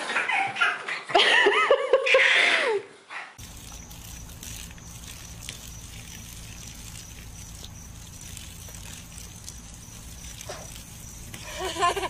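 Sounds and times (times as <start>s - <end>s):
garden hose water spraying: 3.4s - 12.0s.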